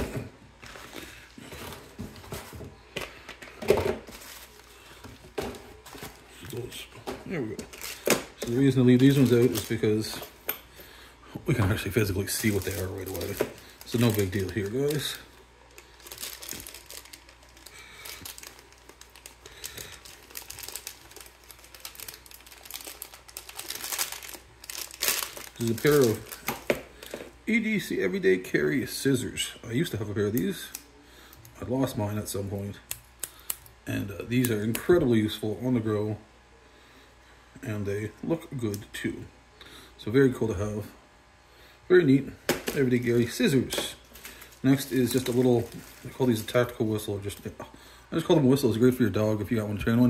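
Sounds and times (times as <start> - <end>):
packaging rustling: 0.0 - 10.4, 11.8 - 27.4, 42.5 - 47.5
plastic bag crinkling: 4.0 - 10.4, 11.6 - 27.4, 42.6 - 47.5.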